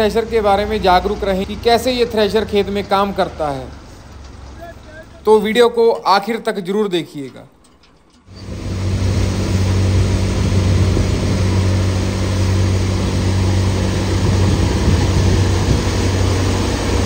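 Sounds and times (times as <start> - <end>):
thresher running with low hum: 7.9 - 17.0.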